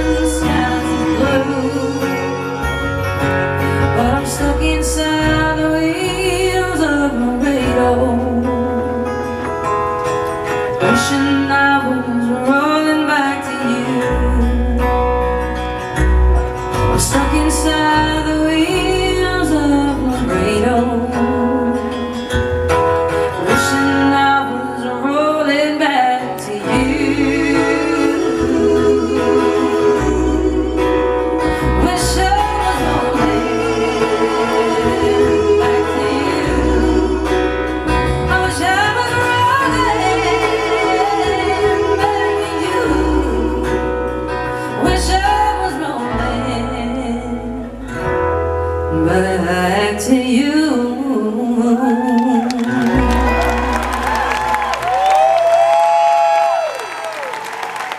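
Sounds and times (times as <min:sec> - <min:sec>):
woman and men singing together: 0:00.0 - 0:03.0, 0:23.4 - 0:47.6
strummed acoustic guitars: 0:00.0 - 0:50.2, 0:52.4 - 0:54.9
acoustic bass guitar: 0:00.0 - 0:56.0.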